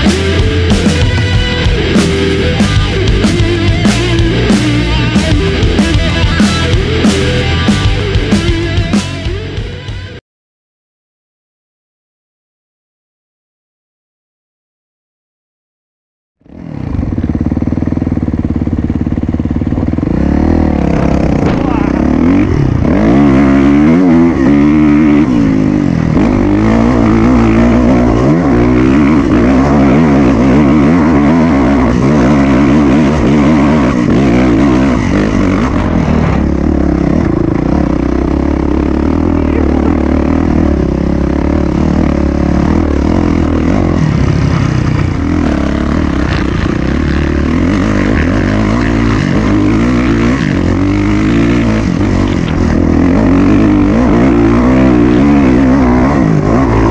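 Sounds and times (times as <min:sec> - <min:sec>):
motorcycle engine revving: 0:00.0 - 0:10.2, 0:16.4 - 0:56.9.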